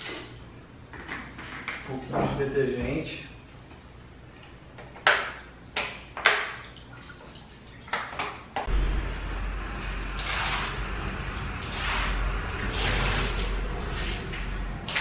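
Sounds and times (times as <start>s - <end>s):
water running and splashing: 5.8s - 8.3s.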